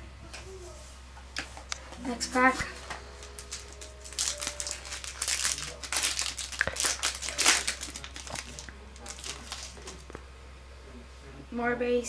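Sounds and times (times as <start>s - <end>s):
card pack wrapper crinkling: 3.2s - 10.2s.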